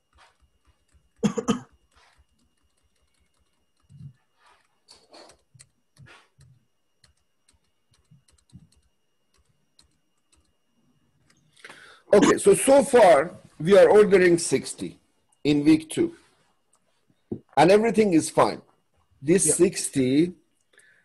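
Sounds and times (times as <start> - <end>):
faint computer clicks and taps: 0.0 - 11.8.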